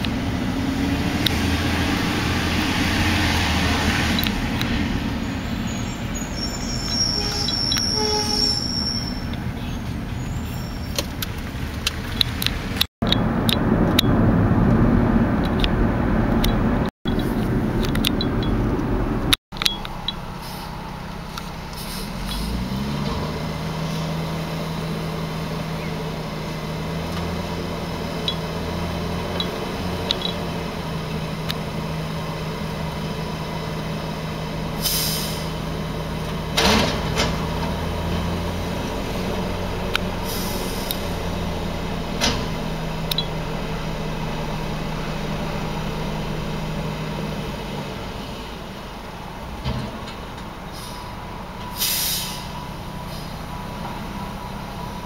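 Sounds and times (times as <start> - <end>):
garbage truck engine revving: 0.0 - 8.0, 20.0 - 55.0
hydraulic hiss: 51.7 - 52.5.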